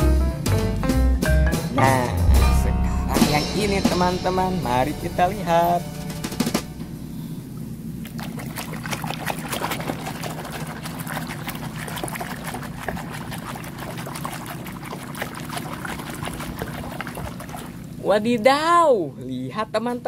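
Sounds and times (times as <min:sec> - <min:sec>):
low steady hum: 0:01.8 - 0:20.0
water sloshing in plastic basin: 0:08.0 - 0:18.4.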